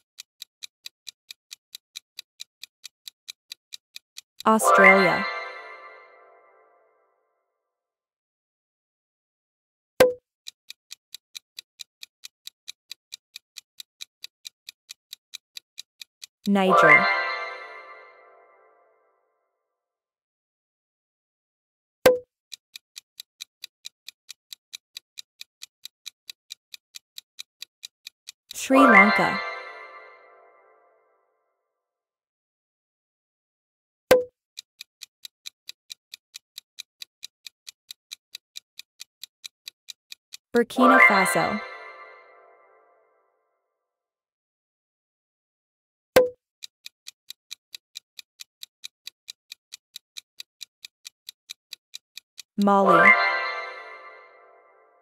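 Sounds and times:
countdown timer ticking: 0:00.0 - 0:06.6, 0:11.1 - 0:18.7, 0:22.1 - 0:30.6, 0:34.1 - 0:42.9, 0:46.2 - 0:55.0.

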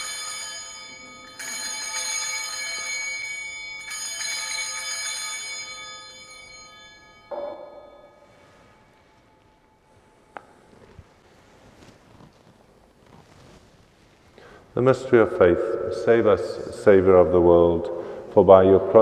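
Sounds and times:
altar bells ringing: 0:00.0 - 0:10.3.

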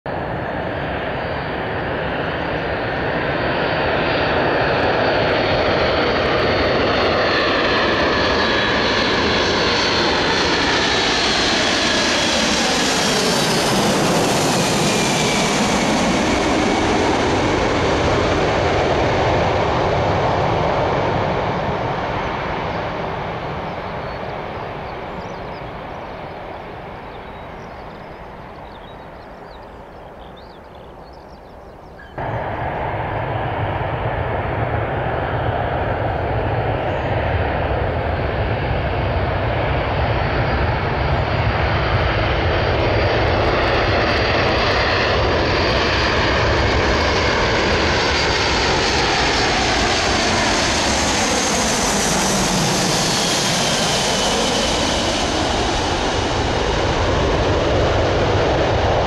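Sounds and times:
jet engines passing overhead: 0:00.1 - 0:59.0.

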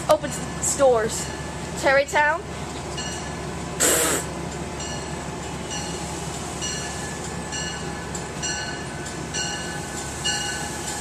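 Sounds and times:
locomotive bell ringing: 0:00.0 - 0:03.6, 0:04.4 - 0:11.0
burst of hiss: 0:03.8 - 0:04.3.

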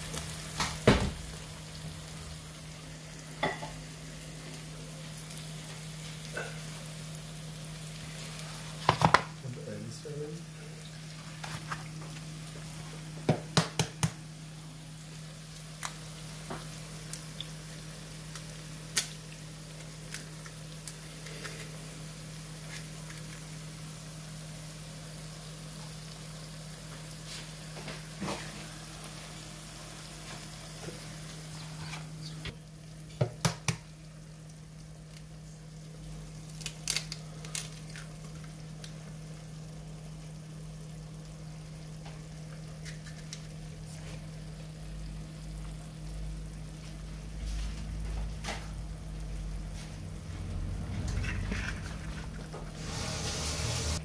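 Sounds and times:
food sizzling in a frying pan: 0:00.0 - 0:54.0
eggs cracked against pan: 0:13.2 - 0:14.2, 0:33.1 - 0:34.0, 0:36.4 - 0:39.0
steady low hum: 0:43.6 - 0:52.8.

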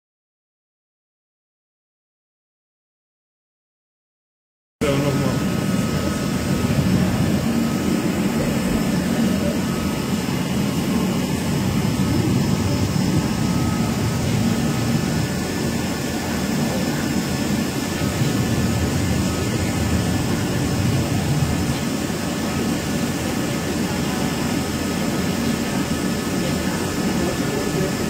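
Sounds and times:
faint high whining tones: 0:04.8 - 0:28.0
machine hum: 0:04.8 - 0:28.0.

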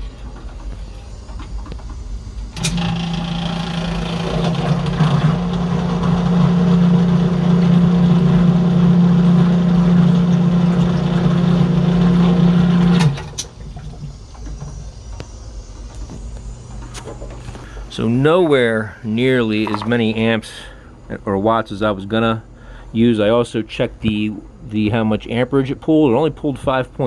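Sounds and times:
sump pump motor humming: 0:00.0 - 0:21.2.

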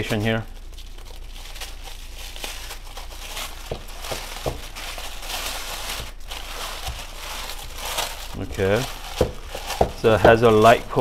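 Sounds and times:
tape peeling: 0:00.0 - 0:11.0
tissue paper rustling: 0:00.0 - 0:11.0
soft knocks: 0:03.7 - 0:04.7, 0:09.2 - 0:10.4.

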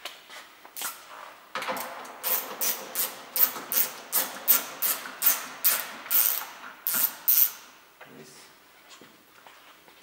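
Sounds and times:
hand ratchet pawl rasping: 0:02.2 - 0:07.6.

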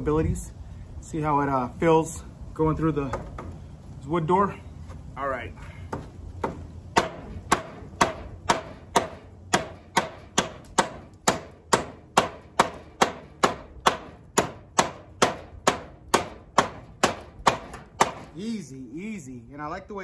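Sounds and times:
knife chopping into wood: 0:05.9 - 0:18.3.

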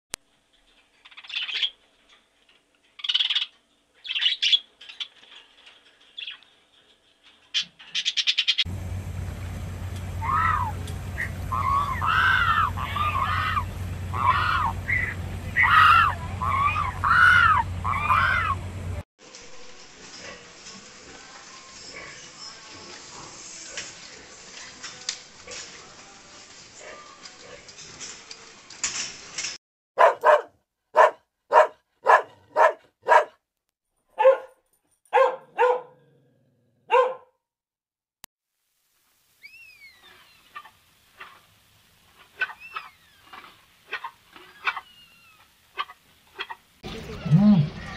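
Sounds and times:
steady low hum: 0:08.7 - 0:19.0
waterbirds honking: 0:08.8 - 0:19.0, 0:40.0 - 0:47.9
dog barking: 0:30.0 - 0:33.4, 0:34.2 - 0:36.0, 0:36.8 - 0:37.4
hiss-like noise: 0:38.5 - 0:46.8.

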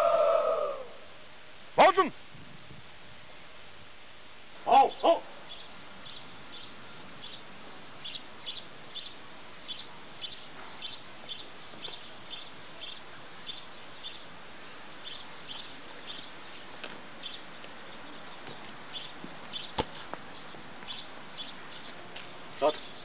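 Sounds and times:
small bird chirping: 0:04.8 - 0:14.3, 0:14.9 - 0:23.0.

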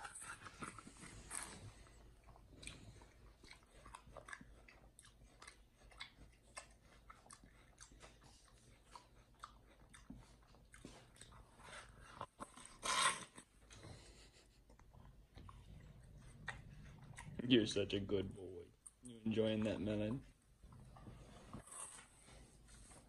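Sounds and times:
wet chewing and lip-smacking: 0:00.0 - 0:13.9, 0:14.6 - 0:17.6
crunch biting into melon: 0:11.2 - 0:13.5.

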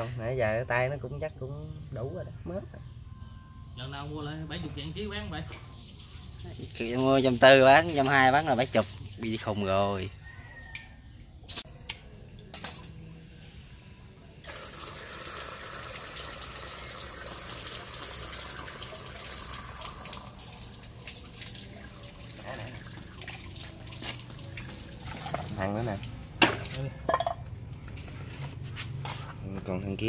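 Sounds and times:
water running from pipe: 0:05.7 - 0:09.7, 0:14.4 - 0:26.8.

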